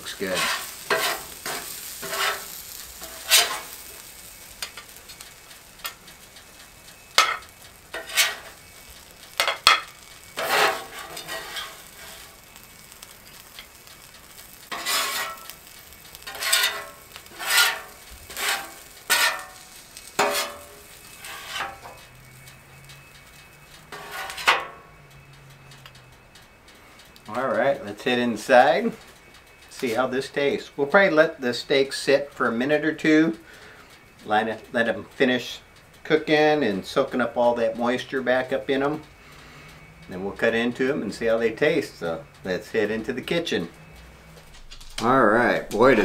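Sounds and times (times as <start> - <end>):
metal spatula scraping griddle: 0.0 - 25.0
steady sizzle: 0.0 - 46.0.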